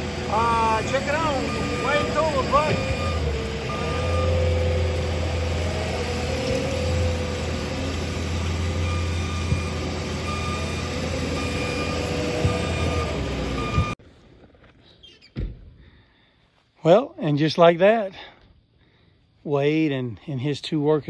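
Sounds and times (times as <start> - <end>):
heavy machine engine humming: 0.0 - 14.0
backup alarm beeping: 0.3 - 4.8, 8.7 - 14.0.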